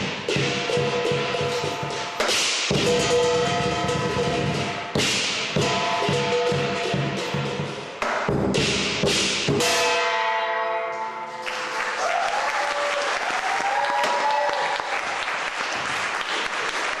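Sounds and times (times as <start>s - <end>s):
audience applauding and cheering: 11.4s - 17.0s.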